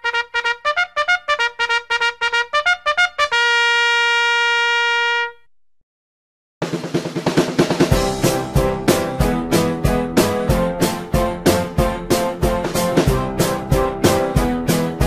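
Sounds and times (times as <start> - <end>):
brass melody: 0.0 - 5.5, 7.9 - 15.0
drum-heavy music: 6.6 - 15.0.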